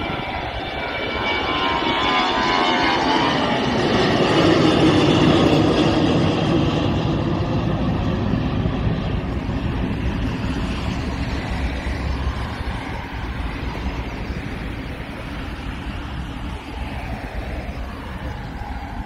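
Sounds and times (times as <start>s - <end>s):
jet engine rumble: 0.0s - 19.0s.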